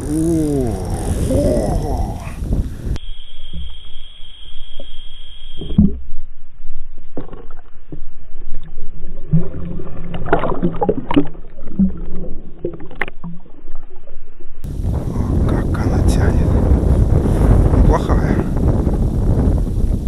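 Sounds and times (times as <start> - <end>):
steady high whine: 2.8 - 5.9.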